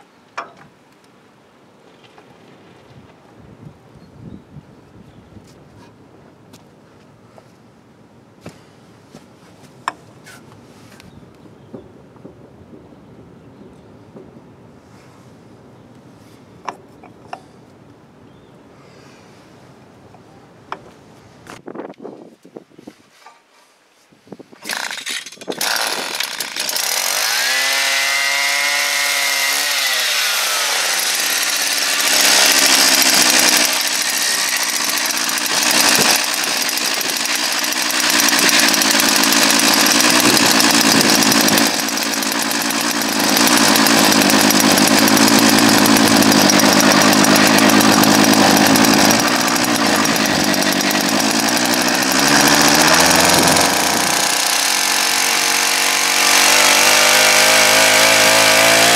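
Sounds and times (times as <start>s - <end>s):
starter cord pull: 24.6s - 27.0s, 31.9s - 58.9s
two-stroke engine revving: 24.7s - 58.9s.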